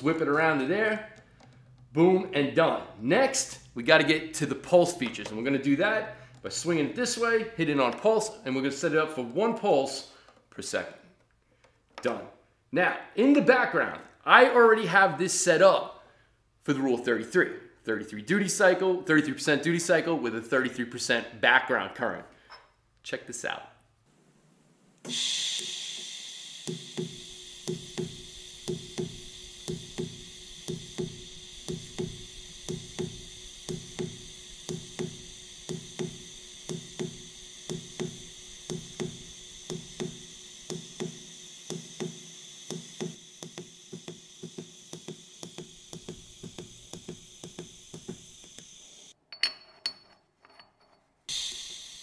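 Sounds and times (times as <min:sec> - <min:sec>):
tig welding arc hiss: 0:25.1 - 0:49.2, 0:51.3 - 0:52.0.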